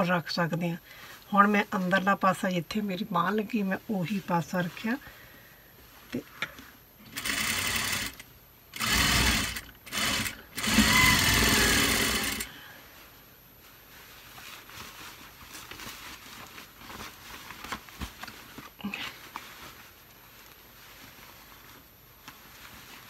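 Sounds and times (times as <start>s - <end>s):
cloth rustling: 0.9s - 6.9s, 10.9s - 23.0s
sewing machine stitching: 7.1s - 12.5s.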